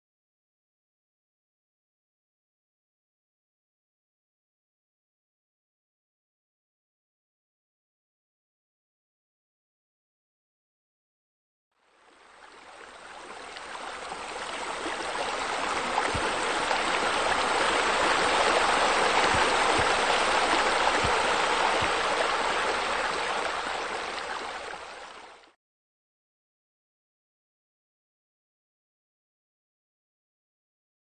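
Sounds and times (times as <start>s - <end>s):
water splashing into a pool: 12.3s - 25.6s.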